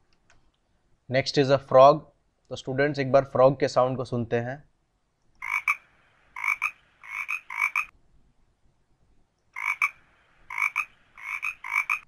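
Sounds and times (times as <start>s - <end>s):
frog croaking: 5.4s - 7.9s, 9.6s - 12.0s.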